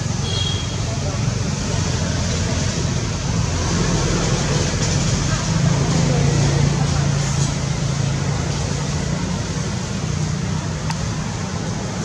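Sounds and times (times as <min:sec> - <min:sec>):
faint tick: 0:10.8 - 0:11.0.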